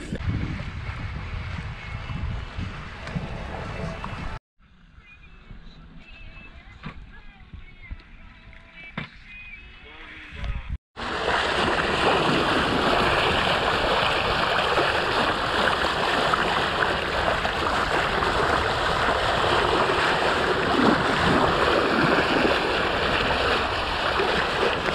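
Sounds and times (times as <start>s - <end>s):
wind on microphone: 0.0s - 4.4s, 10.3s - 24.9s
water rushing along hull: 11.0s - 24.9s.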